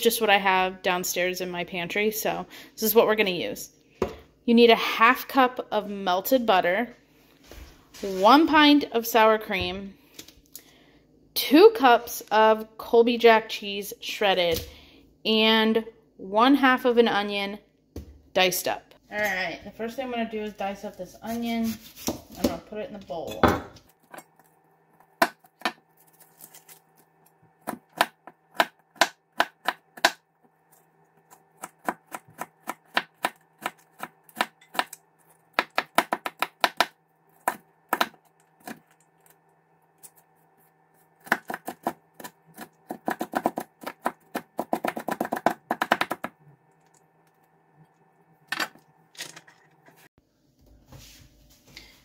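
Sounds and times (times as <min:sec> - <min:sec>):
knife chopping on cutting board: 0:31.6 - 0:38.8.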